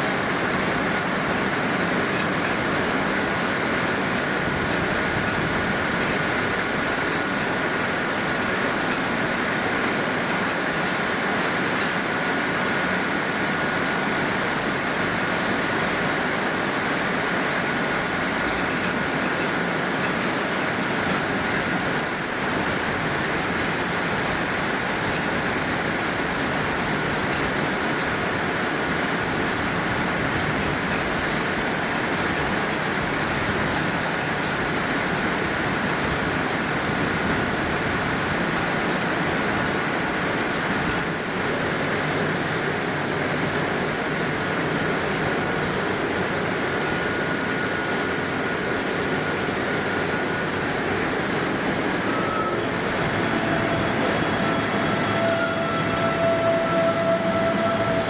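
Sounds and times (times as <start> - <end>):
heavy rain: 0.0 - 58.0
train whining as it pulls away: 0.1 - 58.0
train electric whine: 44.1 - 58.0.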